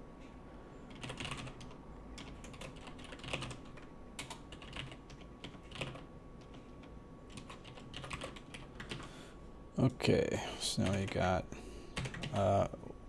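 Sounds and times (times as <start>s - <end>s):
keyboard typing: 0.9s - 9.1s, 10.8s - 11.3s, 12.0s - 12.6s.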